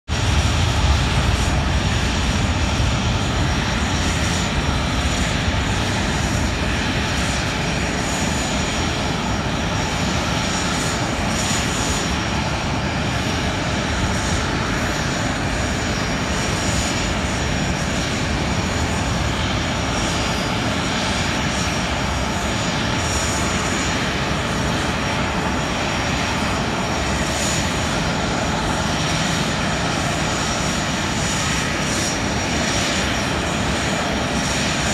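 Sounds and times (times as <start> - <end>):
jet engines idling: 0.1 - 34.9.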